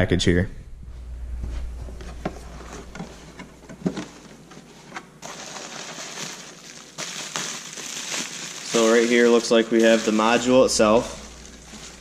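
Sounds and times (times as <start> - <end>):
packing material rustling: 3.8 - 12.0.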